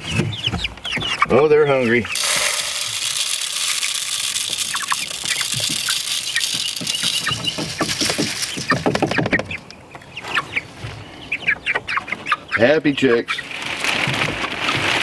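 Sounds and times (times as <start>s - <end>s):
chicks cheeping and clucking: 0.0s - 15.0s
chicken feed pouring into feeder: 1.8s - 9.4s, 13.1s - 15.0s.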